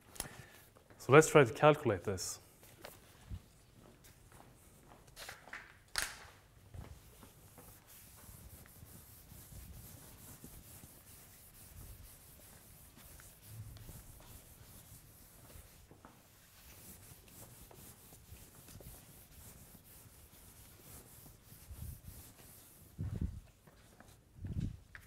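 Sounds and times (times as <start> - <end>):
eraser rubbing chalkboard: 6.9 - 23.0.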